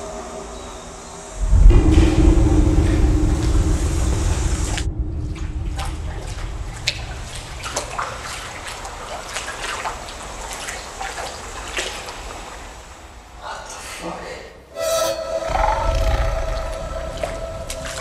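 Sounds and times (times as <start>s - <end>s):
loud low rumble with hum: 1.4s - 8.7s, 15.2s - 18.0s
water drips: 1.5s - 13.1s, 15.8s - 18.0s
water trickling in culvert: 2.2s - 13.4s.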